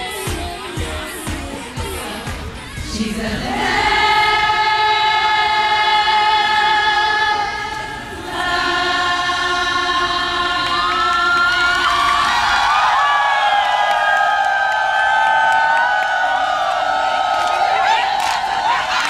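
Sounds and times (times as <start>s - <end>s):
women singing together: 0.0s - 12.8s.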